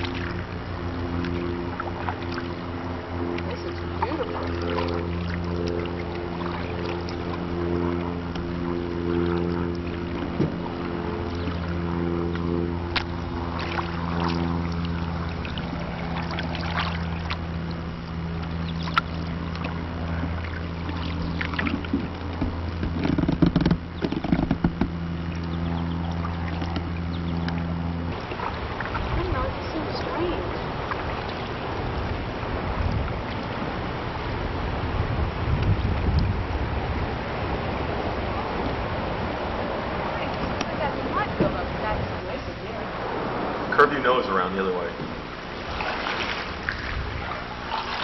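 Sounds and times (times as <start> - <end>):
wooden paddle dipping and dripping: 0.0 - 33.8, 45.0 - 48.0
steady low hum: 0.0 - 48.0
splashes and clunks: 1.1 - 2.6, 3.3 - 29.5, 45.0 - 48.0
sharp knocks: 21.7 - 25.0.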